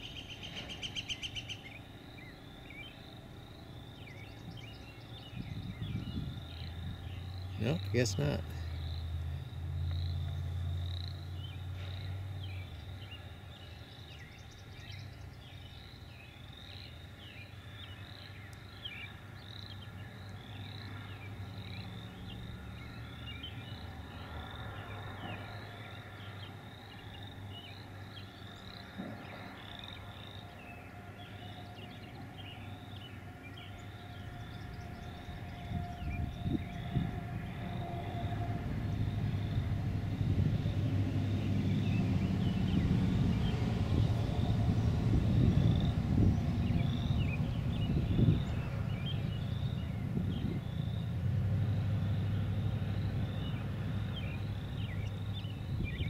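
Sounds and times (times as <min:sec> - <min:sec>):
distant high chirping calls: 0:00.0 - 0:56.0
low rumble: 0:34.5 - 0:56.0.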